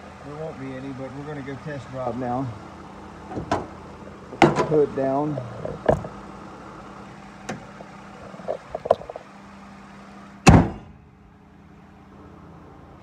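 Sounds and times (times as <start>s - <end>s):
engine idling: 0.0s - 13.0s
car hood slamming shut: 3.3s - 3.8s, 4.4s - 4.8s, 5.7s - 6.2s, 10.4s - 11.0s.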